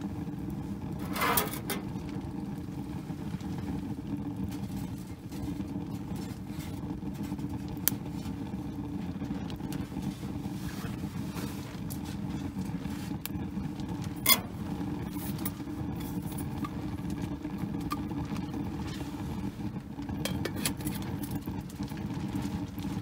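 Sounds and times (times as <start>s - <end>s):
metal pot set on stove: 0.0s - 21.6s
wood fire burning in stove: 0.0s - 23.0s.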